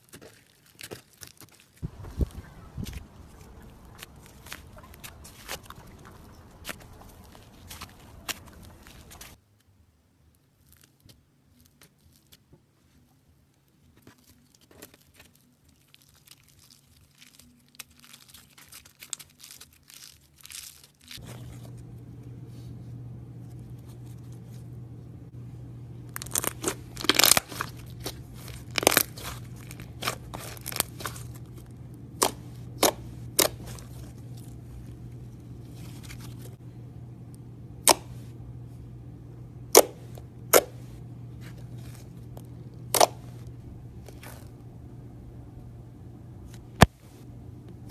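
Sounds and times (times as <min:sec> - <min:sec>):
low steady hum: 0:01.8 - 0:10.3, 0:14.4 - 0:47.9
slime air pockets popping: 0:26.1 - 0:31.4.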